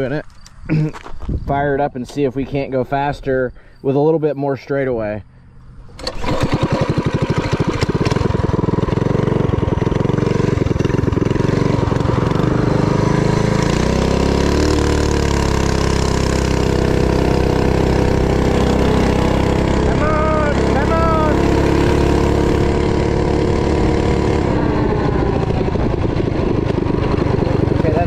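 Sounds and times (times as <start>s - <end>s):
mini bike engine running: 5.9s - 28.0s.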